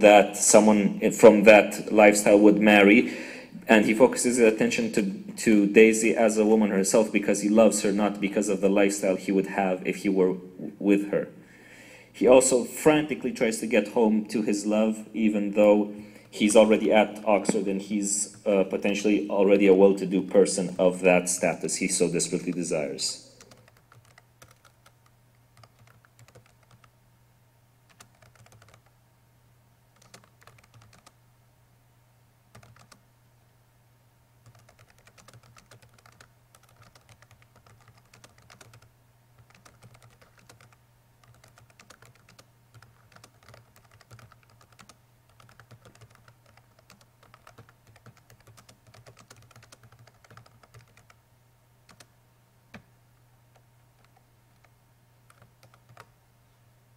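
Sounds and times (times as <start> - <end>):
keyboard typing: 21.9 - 26.9, 27.9 - 28.9, 30.0 - 31.2, 32.5 - 33.0, 34.4 - 51.2, 51.9 - 52.1, 53.5 - 54.7, 55.3 - 56.1.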